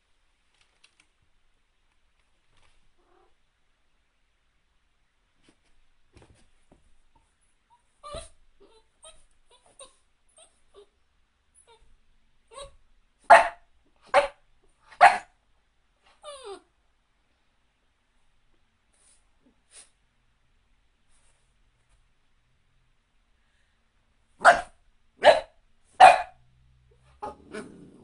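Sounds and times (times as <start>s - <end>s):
dog whining: 7.8s - 10.9s, 16.1s - 16.7s
dog barking: 13.3s - 15.3s, 24.4s - 26.4s.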